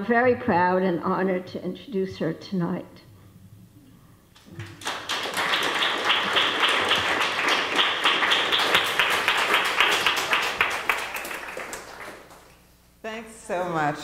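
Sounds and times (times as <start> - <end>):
audience applauding: 4.4 - 12.7.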